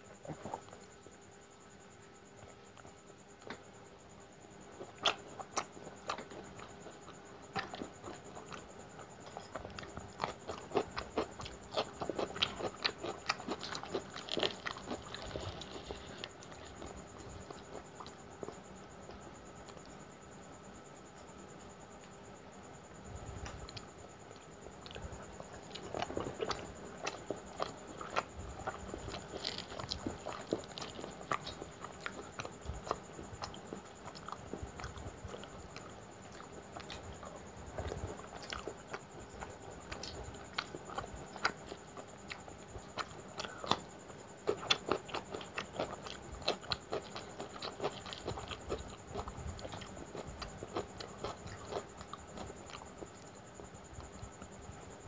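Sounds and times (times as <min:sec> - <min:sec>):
person chewing: 0:04.8 - 0:08.6, 0:09.2 - 0:18.6, 0:24.8 - 0:53.2.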